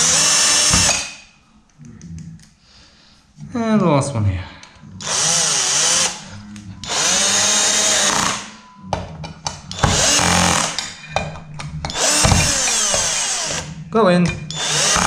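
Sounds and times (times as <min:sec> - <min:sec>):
cordless drill driving screws: 0:00.0 - 0:01.2, 0:05.0 - 0:06.2, 0:06.8 - 0:08.5, 0:09.7 - 0:10.9, 0:11.9 - 0:15.0.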